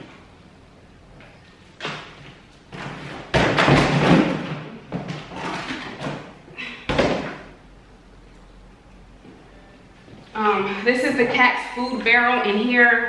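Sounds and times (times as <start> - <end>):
packed items bumping and thudding: 1.8 - 7.5.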